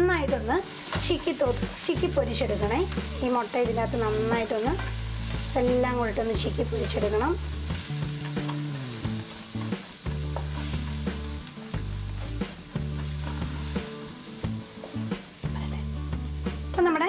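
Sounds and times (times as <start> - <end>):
eggs sizzling in a pan: 0.0 - 17.0.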